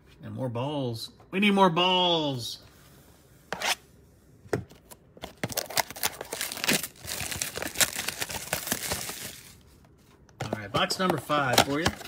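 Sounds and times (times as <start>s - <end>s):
plastic shrink wrap tearing: 5.5s - 9.4s.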